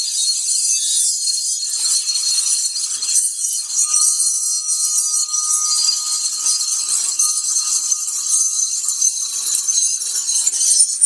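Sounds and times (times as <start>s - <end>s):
oscillating tool cutting steel: 1.5s - 11.0s.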